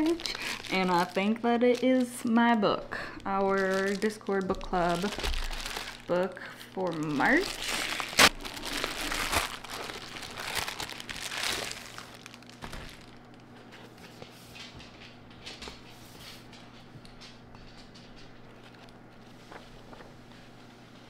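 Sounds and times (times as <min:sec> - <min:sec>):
plastic mailer crinkling: 0:00.0 - 0:14.0
book pages flipping: 0:07.0 - 0:16.5, 0:18.3 - 0:20.9.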